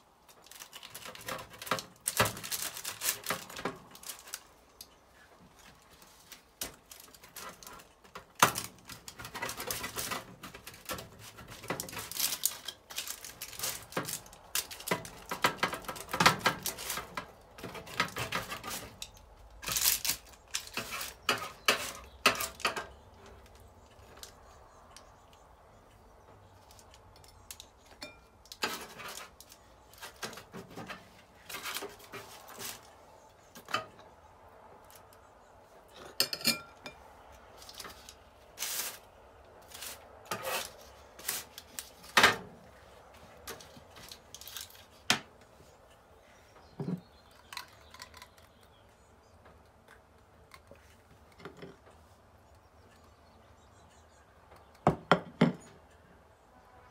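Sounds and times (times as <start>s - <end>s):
server scraping paper and tray: 38.6s - 42.5s
pizza cutter slicing crust: 39.7s - 41.5s.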